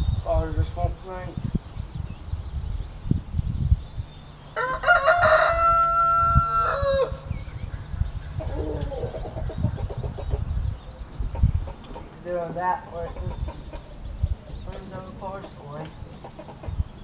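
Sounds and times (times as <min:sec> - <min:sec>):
low rumbling with thumps: 0:00.0 - 0:04.6, 0:05.3 - 0:17.0
rooster crowing: 0:04.6 - 0:07.3.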